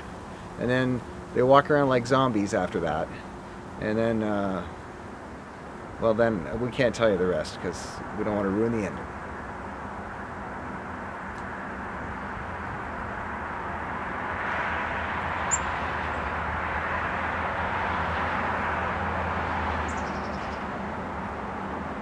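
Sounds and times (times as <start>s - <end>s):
distant engine rumble: 0.0s - 22.0s
faint high bird chirps: 15.5s - 15.8s.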